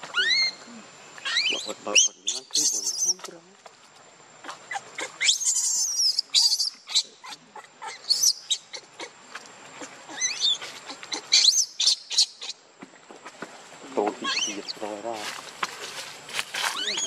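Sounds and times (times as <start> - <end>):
baby monkey screaming: 0.0 - 3.3, 4.4 - 9.2, 9.8 - 12.6, 14.2 - 14.8, 16.7 - 17.0.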